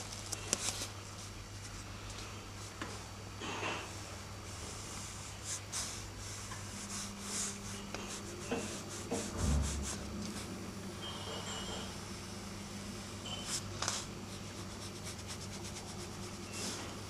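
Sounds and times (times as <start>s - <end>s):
steady low hum: 0.0s - 17.0s
pencil scratching on paper: 5.0s - 10.6s, 13.3s - 16.8s
low thump: 9.1s - 10.0s.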